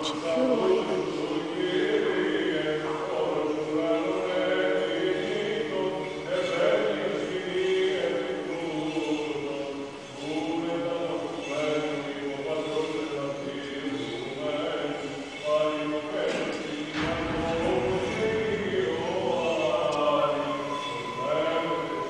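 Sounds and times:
men chanting: 16.4 - 22.0
held low drone note: 17.0 - 22.0.

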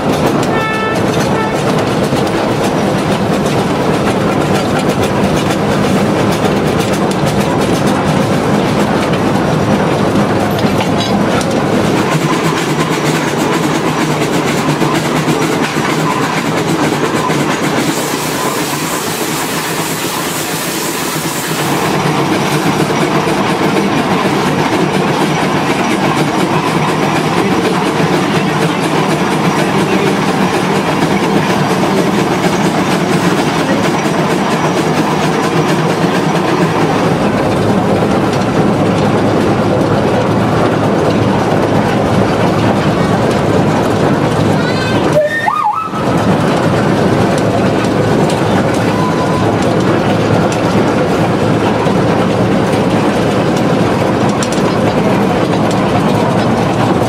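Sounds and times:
steam locomotive clattering on rails: 0.0 - 57.0
steam hissing: 11.5 - 38.0.

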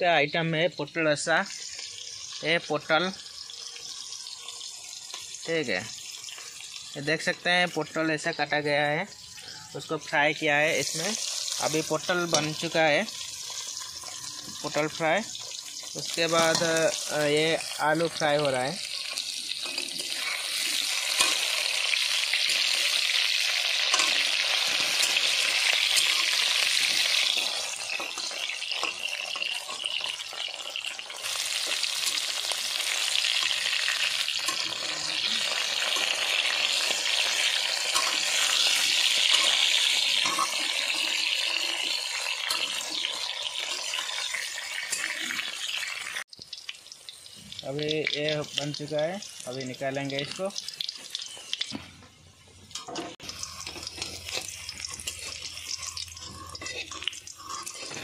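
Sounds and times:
vegetables sizzling in hot oil: 0.0 - 58.0
metal spatula stirring: 10.8 - 45.4, 52.8 - 58.0.

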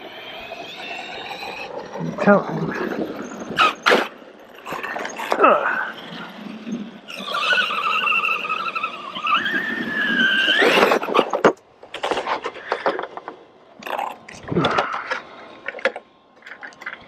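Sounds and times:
electric toy truck motor whining: 0.0 - 11.6
clicks and scrapes: 10.6 - 17.0.

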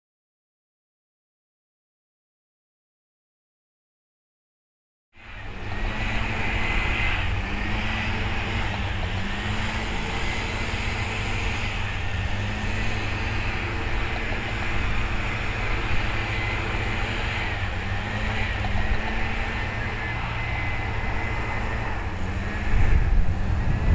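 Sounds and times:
faint droning hum: 5.2 - 23.9.

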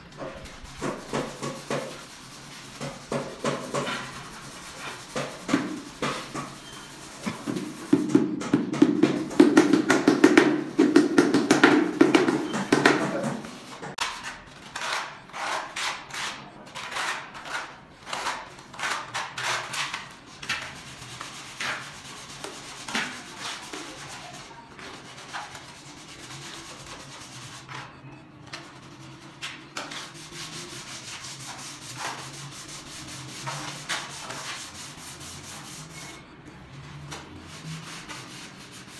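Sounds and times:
block scraping over tile adhesive: 9.0 - 25.7.

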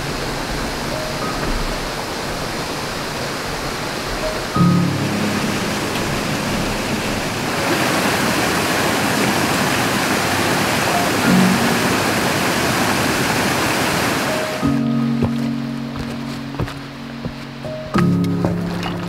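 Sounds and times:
creek rushing over rocks: 0.0 - 19.0.

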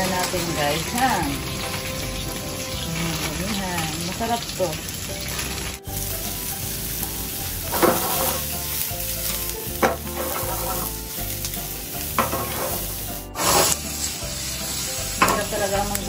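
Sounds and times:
mushrooms sizzling in a frying pan: 0.0 - 16.0
tongs clacking against a pan: 9.1 - 13.9, 15.1 - 16.0.

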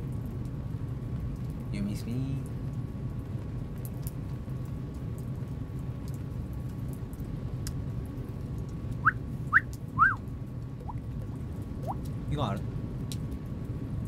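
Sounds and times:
light rain pattering: 0.0 - 14.0
steady low rumble: 0.0 - 14.0
drips ticking: 8.6 - 12.2
person whistling: 9.0 - 10.2.

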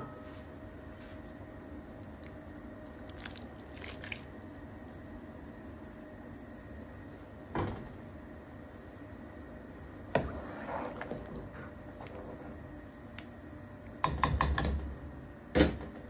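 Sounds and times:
food plopping into a pan: 3.1 - 4.4.

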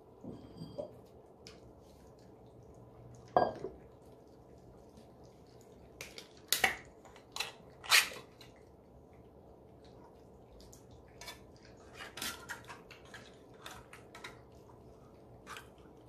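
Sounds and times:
cats licking and chewing: 0.9 - 16.0.

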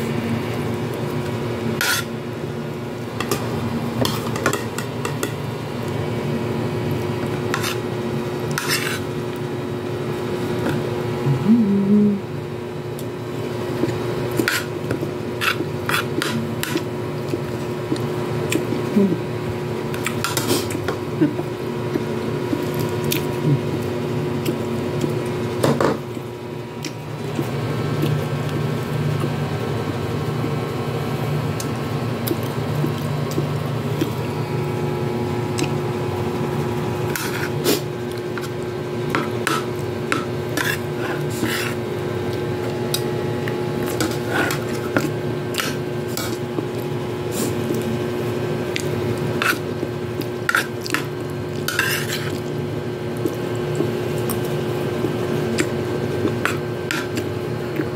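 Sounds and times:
steady low hum: 0.0 - 57.9
metal spoon scraping a plate: 1.8 - 2.1, 7.5 - 7.8, 8.6 - 9.1, 51.7 - 52.3.

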